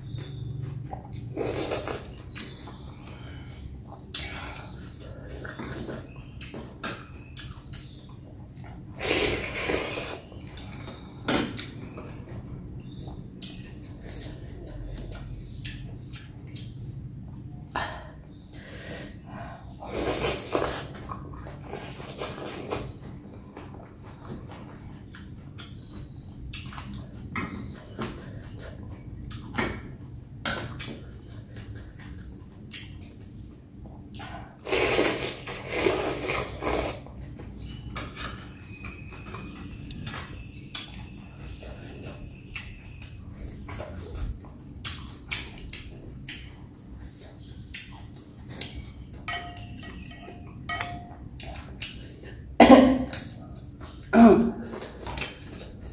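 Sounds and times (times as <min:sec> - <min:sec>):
chewing: 0:12.8 - 0:16.8, 0:30.7 - 0:52.5, 0:53.1 - 0:55.9
person slurping noodles: 0:34.6 - 0:37.0.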